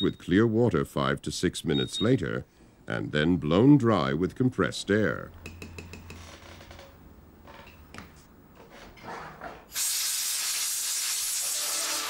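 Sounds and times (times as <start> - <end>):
compressed air hissing: 9.7 - 12.0.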